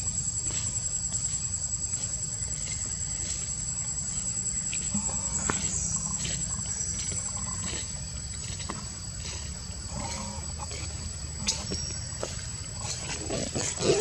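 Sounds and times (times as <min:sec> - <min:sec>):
insects buzzing: 0:00.0 - 0:14.0.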